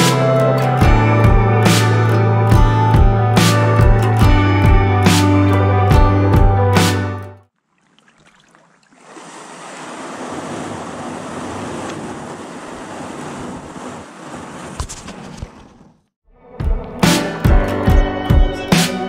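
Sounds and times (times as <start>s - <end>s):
water rushing: 7.6s - 14.8s.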